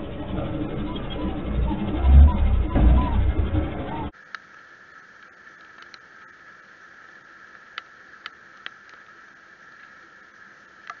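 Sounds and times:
faint steady hiss: 4.1s - 11.0s.

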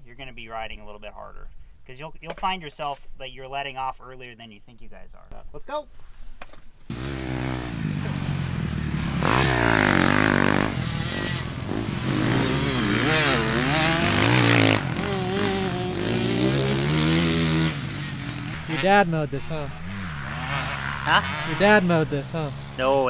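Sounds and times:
dirt bike engines revving: 6.9s - 23.0s.

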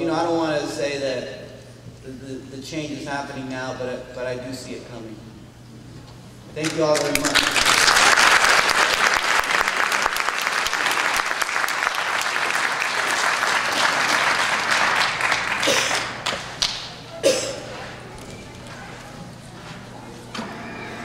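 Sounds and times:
audience applauding: 6.6s - 17.1s.

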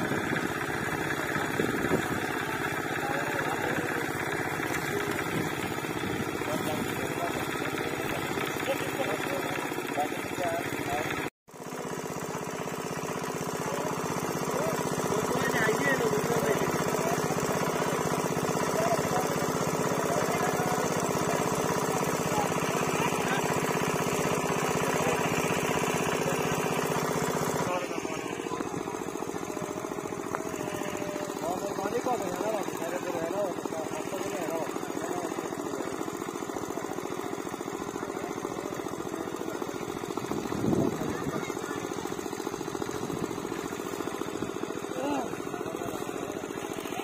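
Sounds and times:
small engine running: 0.0s - 47.0s.

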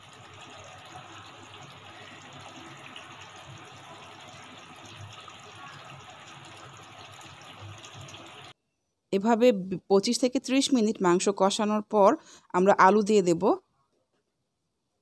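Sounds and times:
meat bubbling and sizzling in pot: 0.0s - 8.6s.

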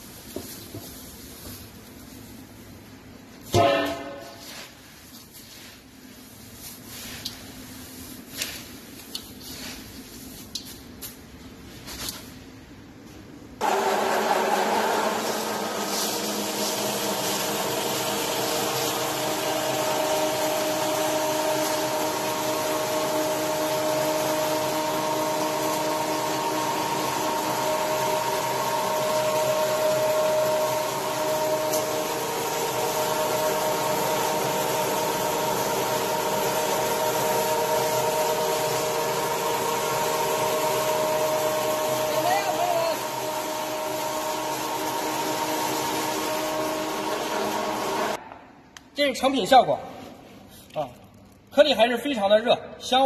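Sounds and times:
pellet mill motor hum: 13.6s - 48.2s
whine and grinding of pellet mill: 13.6s - 48.2s.

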